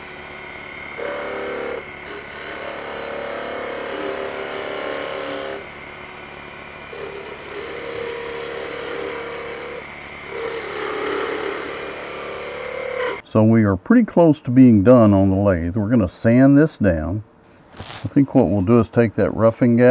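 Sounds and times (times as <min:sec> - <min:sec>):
gouge cutting wood whine: 0:00.0 - 0:13.2
lathe humming: 0:00.0 - 0:13.2.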